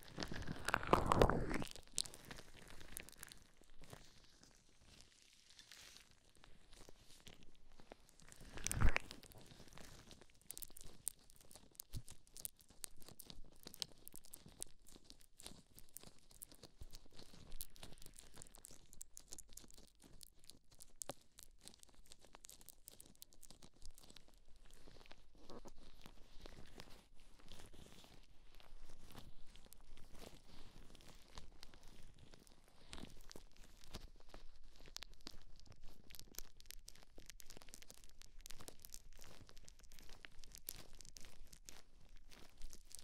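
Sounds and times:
gloved hands rubbing microphone: 0:00.0 - 0:01.9, 0:08.4 - 0:10.0.

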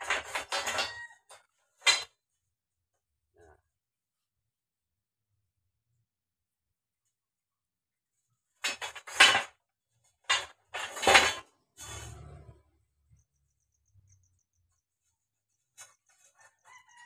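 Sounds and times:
steel pipes clinking and scraping: 0:00.0 - 0:02.2, 0:08.6 - 0:12.6.

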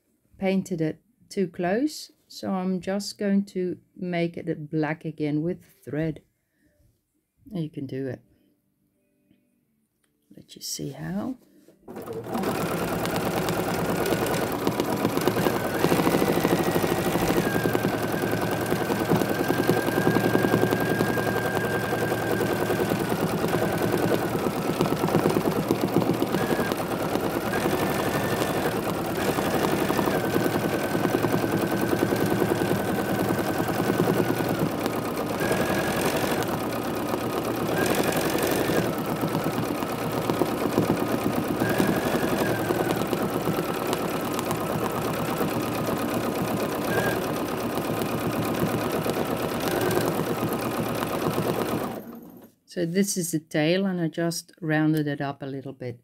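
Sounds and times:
sewing machine stitching: 0:11.9 - 0:52.6.

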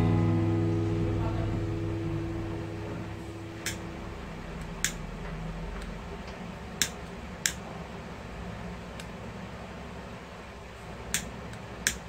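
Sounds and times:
soldering pen plastic clicks: 0:04.8 - 0:05.0, 0:05.8 - 0:07.6, 0:11.1 - 0:12.0.

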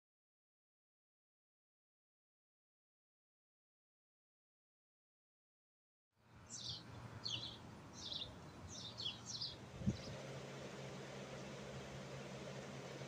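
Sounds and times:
small bird chirping: 0:06.4 - 0:10.2
low hum: 0:08.3 - 0:13.0.

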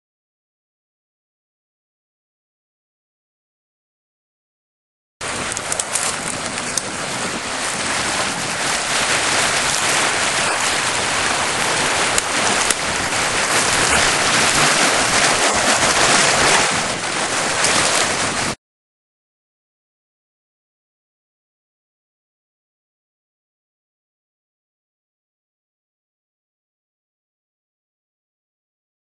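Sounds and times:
water gushing from a pipe: 0:05.2 - 0:18.6.

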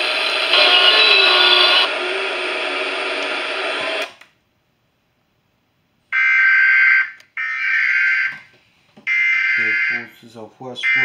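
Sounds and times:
noise hiss: 0:00.0 - 0:06.1.

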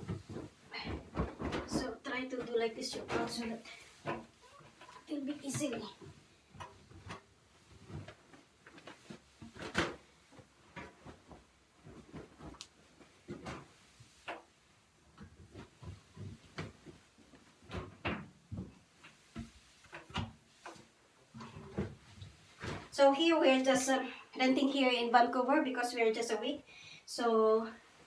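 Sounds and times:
laundry thumps and knocks: 0:00.0 - 0:04.4, 0:05.4 - 0:12.6, 0:15.1 - 0:20.8
laundry rustling: 0:00.0 - 0:25.0.

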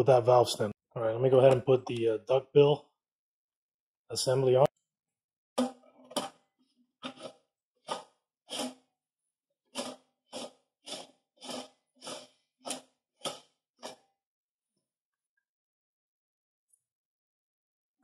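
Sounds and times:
metal-on-metal scraping: 0:07.0 - 0:08.8, 0:09.7 - 0:14.0.

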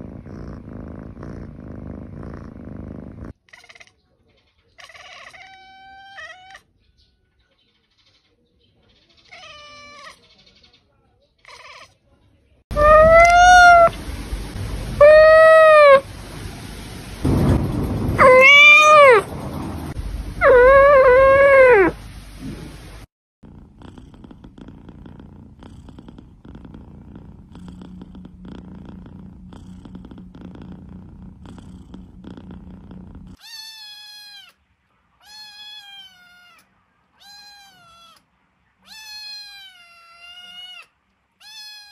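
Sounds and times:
cat purring: 0:00.0 - 0:03.8, 0:23.4 - 0:33.4
cat meowing loudly: 0:04.8 - 0:06.6, 0:09.3 - 0:10.2, 0:12.7 - 0:14.0, 0:15.0 - 0:16.1, 0:18.2 - 0:19.3, 0:20.4 - 0:22.0, 0:33.4 - 0:34.6, 0:35.2 - 0:36.6, 0:37.2 - 0:38.2, 0:38.8 - 0:41.9
kitten mewing: 0:12.7 - 0:14.0, 0:15.0 - 0:16.0, 0:20.4 - 0:22.0.

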